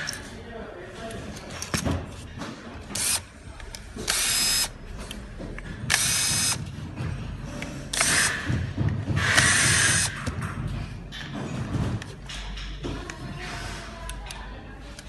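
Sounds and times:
electric screwdriver whirring: 0:02.9 - 0:03.3, 0:04.0 - 0:04.8, 0:05.9 - 0:06.6, 0:07.9 - 0:08.4, 0:09.3 - 0:10.1.

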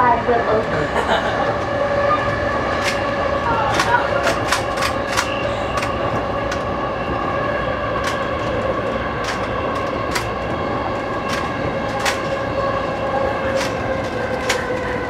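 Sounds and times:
electric train whine: 0:00.0 - 0:15.0
wheels rumbling: 0:00.0 - 0:15.0
wheels clicking over rail joints: 0:02.8 - 0:06.7, 0:07.9 - 0:15.0.

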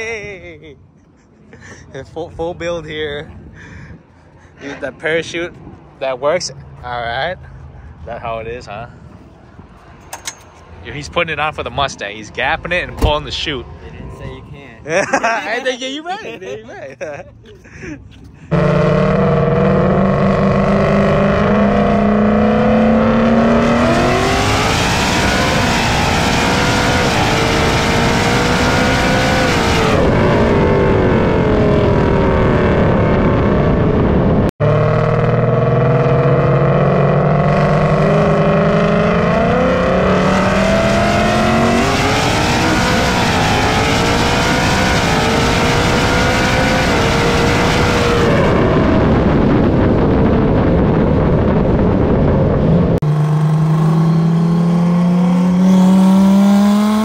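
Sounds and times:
car engine at full throttle: 0:02.4 - 0:15.6, 0:17.0 - 0:57.0
wind rush on microphone: 0:03.0 - 0:04.5, 0:40.6 - 0:53.0.

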